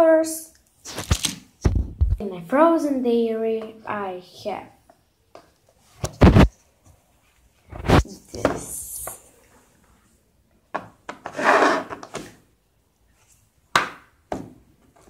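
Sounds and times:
rubbing and scraping: 0:07.6 - 0:08.2, 0:11.2 - 0:12.2.

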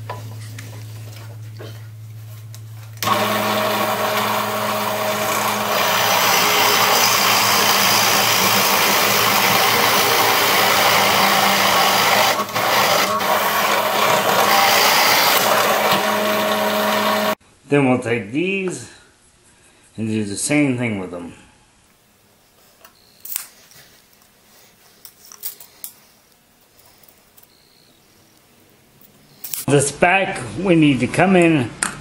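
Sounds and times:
drill bit boring into wood: 0:03.0 - 0:17.4
drill press motor humming: 0:03.0 - 0:17.4.

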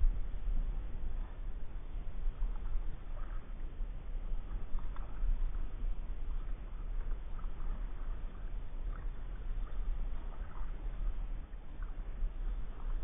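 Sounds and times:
steady low rumble: 0:00.0 - 0:13.0
paddle splashing in water: 0:04.3 - 0:13.0.

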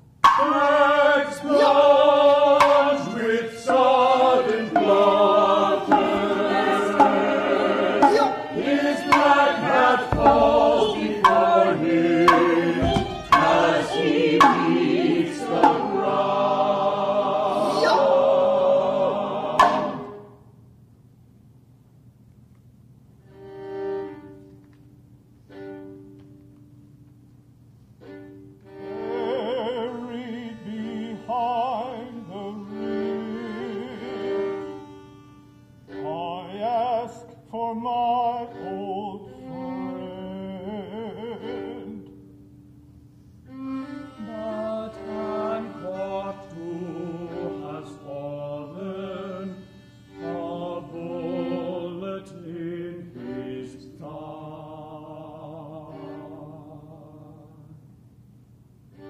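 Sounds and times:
person chanting with vibrato: 0:00.4 - 0:07.2, 0:08.0 - 0:14.8, 0:17.1 - 0:20.2.

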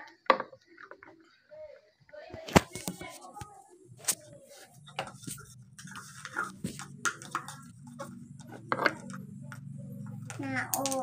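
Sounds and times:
spoon tapping in plastic cup: 0:05.8 - 0:11.0.

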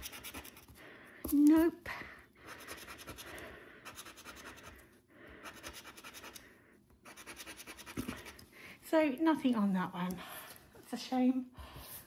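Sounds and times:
scratcher rubbing scratch card: 0:00.0 - 0:00.8, 0:02.5 - 0:04.8, 0:05.4 - 0:06.4, 0:07.0 - 0:08.4.

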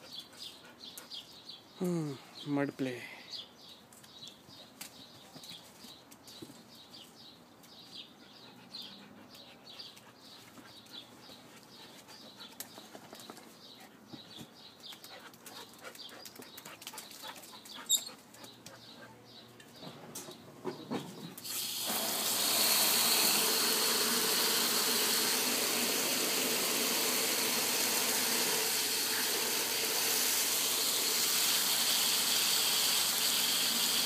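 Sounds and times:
dogs scrabbling in mud: 0:14.9 - 0:19.2.

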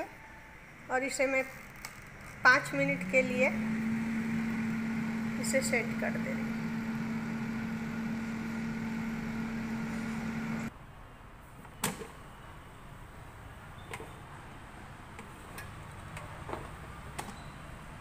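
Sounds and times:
air fryer fan hum: 0:02.5 - 0:10.7.

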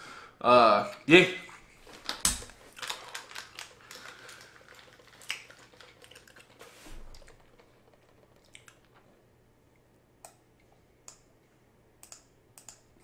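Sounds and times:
headphones rustling and clicking: 0:01.6 - 0:09.3.

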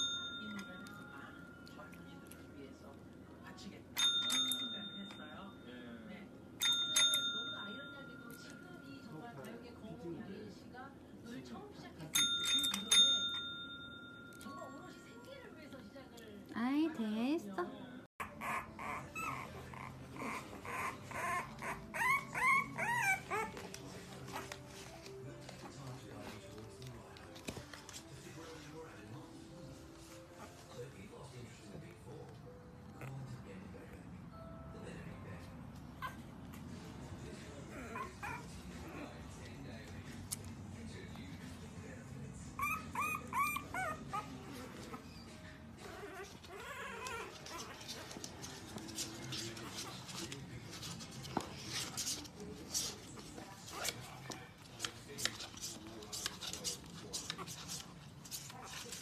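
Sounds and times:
puppies whimpering and squealing: 0:18.2 - 0:24.9, 0:35.9 - 0:36.7, 0:37.4 - 0:39.2, 0:42.5 - 0:48.2.

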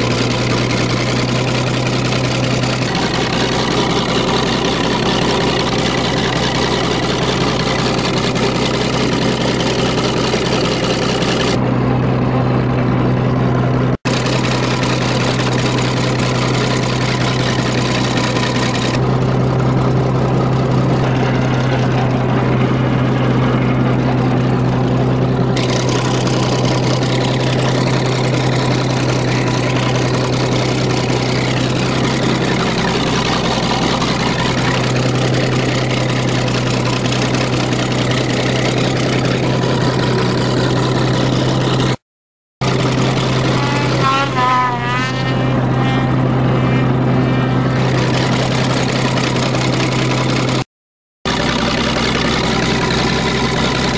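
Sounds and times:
bulldozer engine running: 0:00.0 - 0:42.0, 0:42.6 - 0:50.6, 0:51.3 - 0:53.9.

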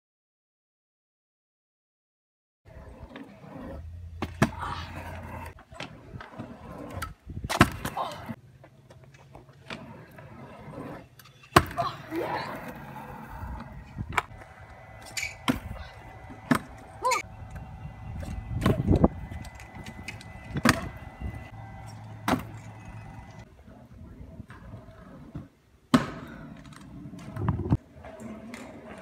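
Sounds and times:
scooter wheels rumbling on concrete: 0:02.7 - 0:29.0
scooter deck clacking down: 0:14.1 - 0:23.5.

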